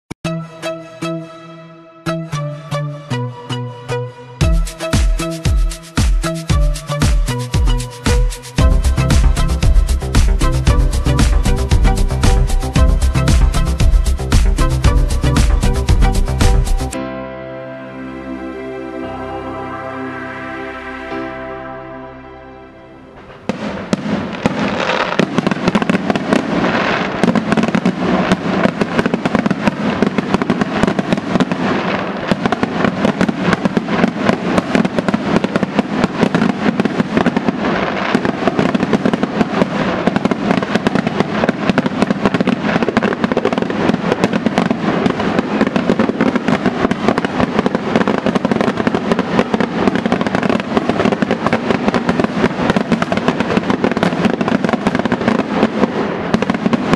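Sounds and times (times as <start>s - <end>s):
soft music: 0.2s - 24.2s
fireworks bangs and crackling: 4.4s - 17.0s, 23.2s - 56.9s.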